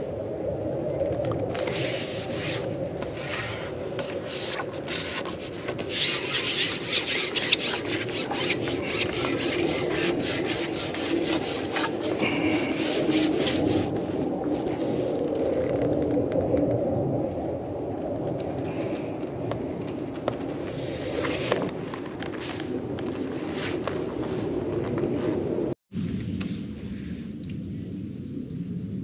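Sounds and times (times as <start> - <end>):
fishing pole sections rasping: 4.2 - 13.9.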